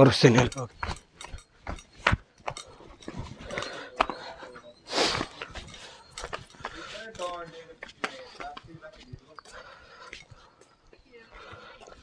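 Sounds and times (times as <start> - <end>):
footsteps on rock: 0.2 - 4.4, 5.2 - 9.6.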